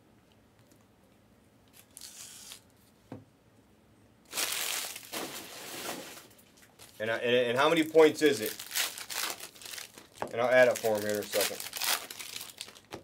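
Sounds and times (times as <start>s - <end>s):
foil wrappers crinkling: 4.3s - 7.0s, 7.6s - 13.0s.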